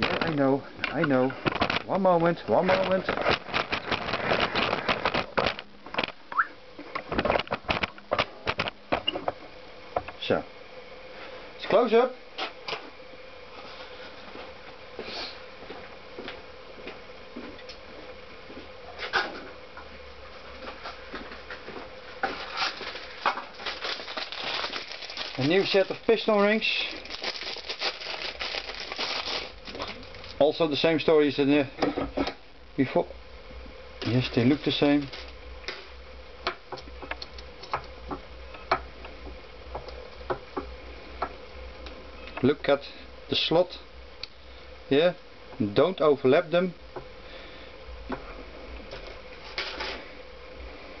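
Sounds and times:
faint steady hum: 0:00.0 - 0:51.0
rustling: 0:22.2 - 0:30.4, 0:34.0 - 0:35.4.

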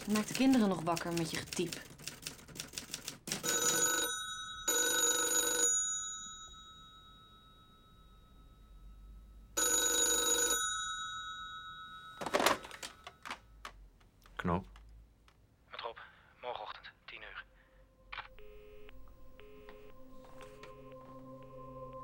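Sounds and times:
telephone bell ringing: 0:03.4 - 0:13.4.

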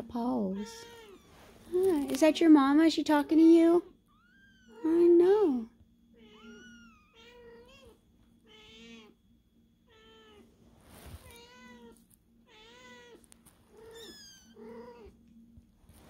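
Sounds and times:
cat meowing: 0:00.6 - 0:01.3, 0:06.2 - 0:09.1, 0:11.3 - 0:15.1.

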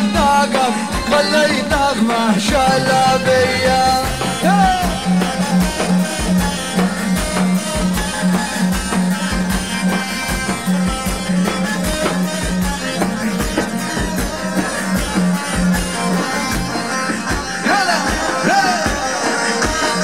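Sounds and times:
steady drum beat: 0:00.0 - 0:20.0
pulsing bass note: 0:02.5 - 0:05.3.

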